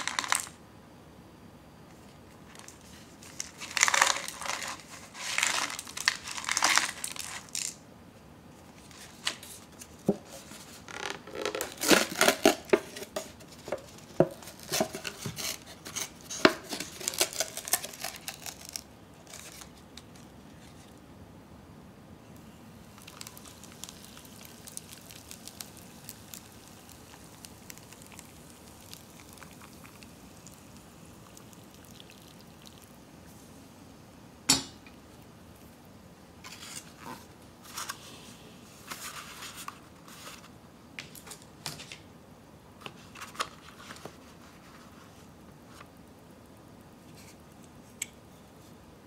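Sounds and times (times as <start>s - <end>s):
hot water pouring into cup: 22.9s - 33.0s.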